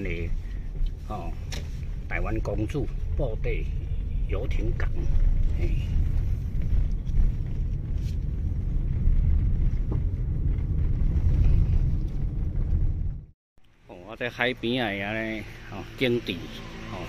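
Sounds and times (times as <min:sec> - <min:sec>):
car interior rumble: 0:00.0 - 0:13.4.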